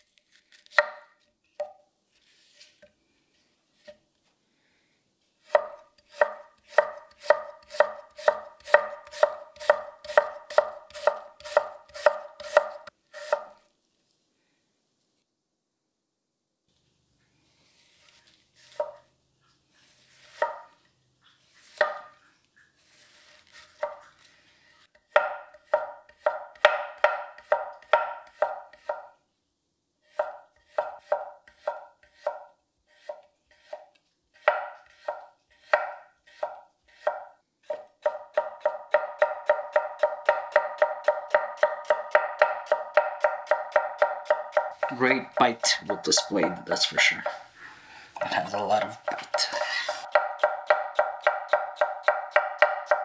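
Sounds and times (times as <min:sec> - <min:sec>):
knife chopping on wooden board: 0:05.5 - 0:13.5, 0:20.3 - 0:20.7, 0:25.1 - 0:29.1, 0:30.1 - 0:46.6, 0:48.2 - 0:53.0.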